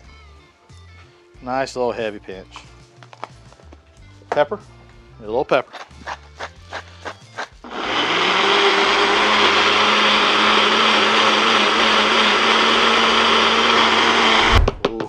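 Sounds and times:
blender motor running: 0:06.5 - 0:14.6.

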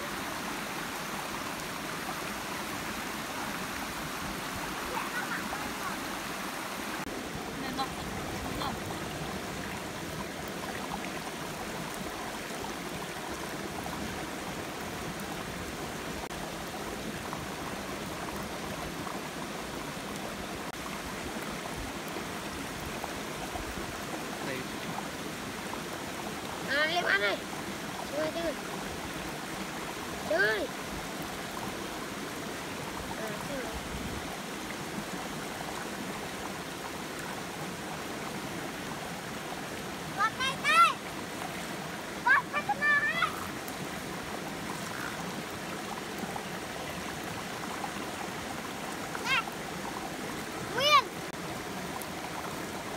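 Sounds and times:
stream flowing over rocks: 0:00.0 - 0:52.9.

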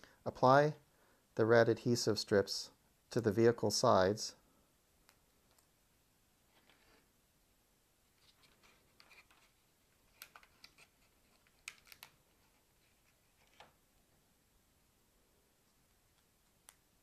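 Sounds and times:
soft rustles: 0:08.1 - 0:13.8.

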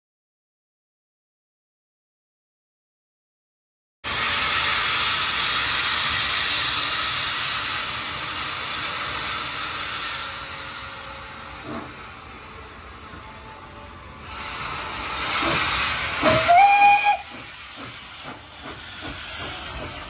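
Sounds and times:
steam locomotive hissing steam: 0:04.0 - 0:20.0.

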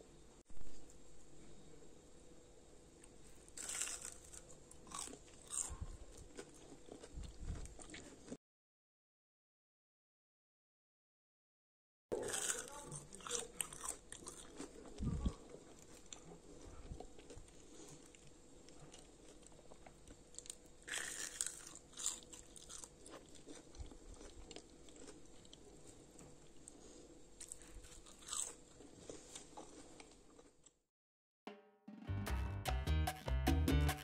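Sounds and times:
person chewing crispy snacks: 0:03.0 - 0:08.4, 0:12.1 - 0:30.8.

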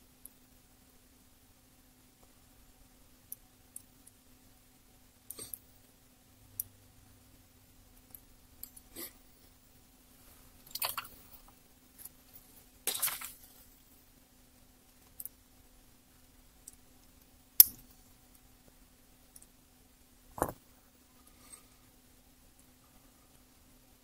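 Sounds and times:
faint hum: 0:00.0 - 0:24.0.

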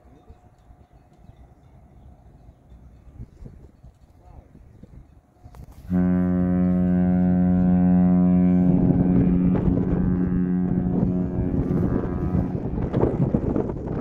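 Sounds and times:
wind noise on microphone: 0:00.2 - 0:14.0
deep ship horn blast: 0:05.6 - 0:13.5.

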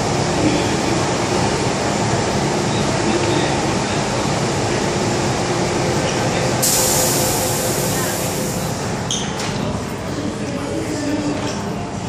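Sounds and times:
passenger chatter: 0:00.0 - 0:12.0
train doors hissing: 0:06.6 - 0:09.4.

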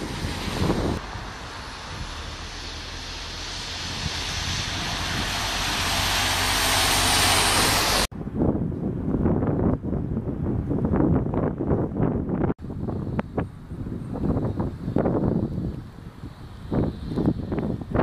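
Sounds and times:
bus engine: 0:00.0 - 0:08.1
bus tyres hissing on wet road: 0:00.0 - 0:08.1, 0:14.1 - 0:18.0
wind gusts on microphone: 0:00.0 - 0:18.0.

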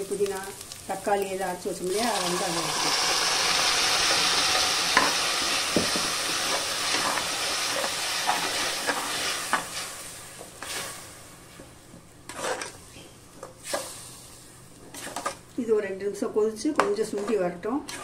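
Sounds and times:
paste sizzling in hot oil: 0:00.0 - 0:11.5.

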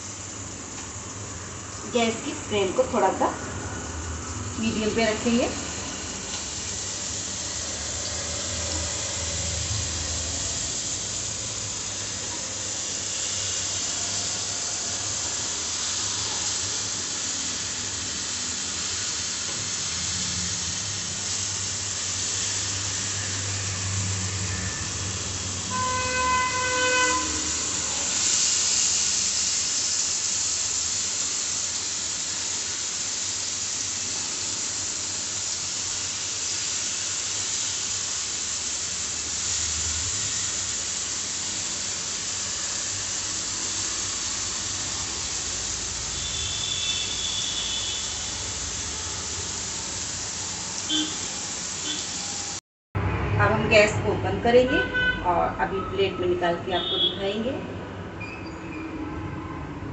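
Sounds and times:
fat sizzling in a pan: 0:00.0 - 0:52.6
short horn-like tone: 0:25.6 - 0:28.1, 0:46.0 - 0:49.5, 0:50.9 - 0:52.6.

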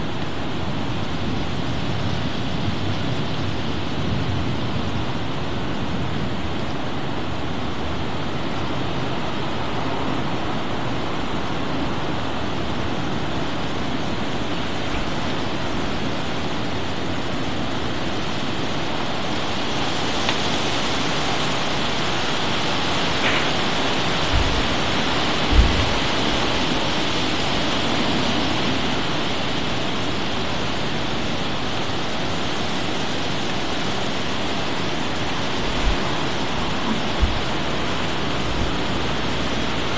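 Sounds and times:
heavy rain falling: 0:00.0 - 0:39.9
low thumps: 0:24.3 - 0:24.7, 0:25.4 - 0:26.1.

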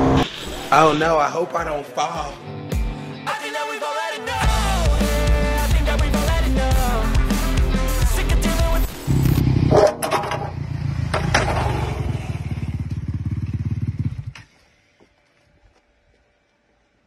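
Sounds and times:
dirt bike engine pulling away: 0:09.0 - 0:15.0.

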